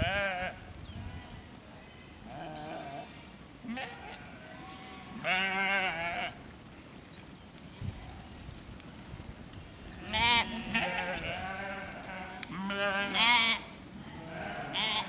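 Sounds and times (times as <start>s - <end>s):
sheep bleating: 0.0s - 6.4s, 10.0s - 15.0s.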